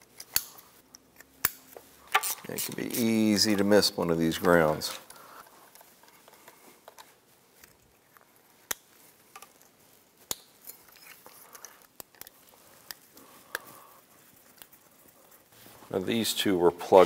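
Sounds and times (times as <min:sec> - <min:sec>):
plastic connectors clicking: 0:00.0 - 0:02.9, 0:06.4 - 0:13.8
wires rustling: 0:00.0 - 0:17.0.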